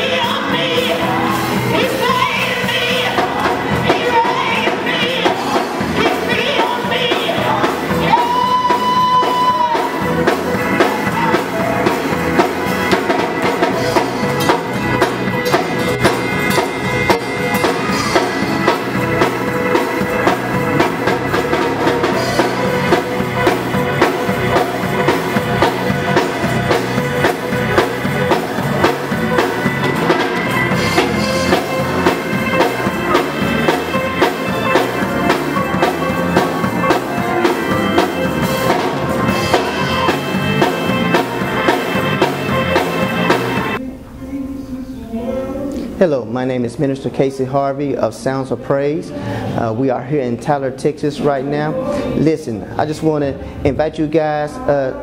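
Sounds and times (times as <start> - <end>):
drum kit beat: 0.0 - 43.8
electric bass guitar: 0.0 - 43.8.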